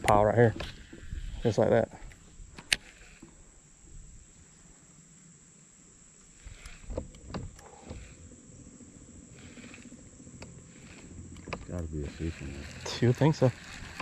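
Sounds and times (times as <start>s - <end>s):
insect chorus: 0.0s - 14.0s
fishing reel clicks: 2.6s - 3.3s, 6.4s - 8.3s, 9.3s - 14.0s.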